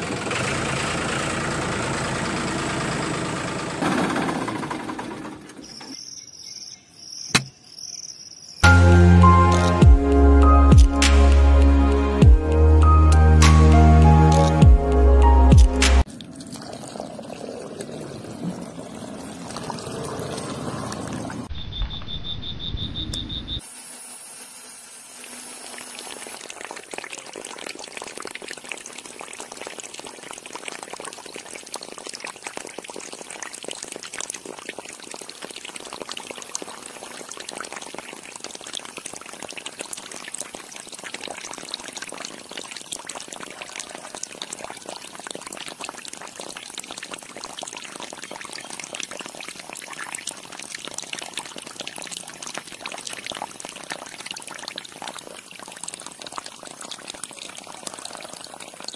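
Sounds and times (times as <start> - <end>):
water stream splashing into pool: 15.6 - 21.5, 23.6 - 58.9.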